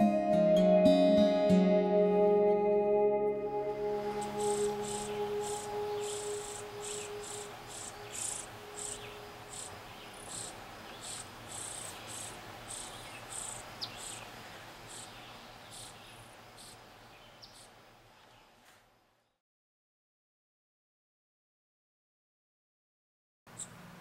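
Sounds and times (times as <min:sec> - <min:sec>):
crickets chirping: 0:03.6 - 0:18.0.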